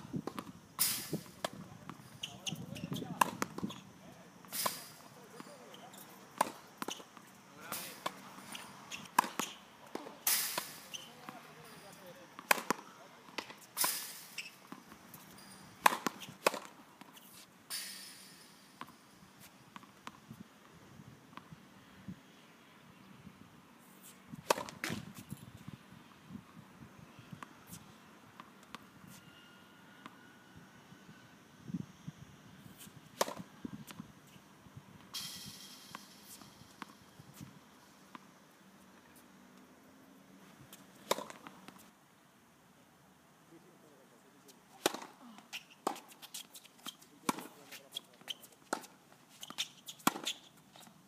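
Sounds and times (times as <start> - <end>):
tennis balls struck by rackets: 0.2 - 17.1, 24.4 - 25.4, 33.1 - 34.2, 40.7 - 41.9, 44.8 - 47.6, 48.2 - 51.0
footsteps and scuffs on hard court: 1.1 - 3.9, 4.6 - 10.2, 44.4 - 51.0
tennis racket hitting ball: 7.8 - 11.1, 12.4 - 14.1, 15.8 - 16.8, 24.4 - 25.1, 33.2 - 33.5, 41.0 - 41.8, 44.8 - 45.1, 48.3 - 50.4.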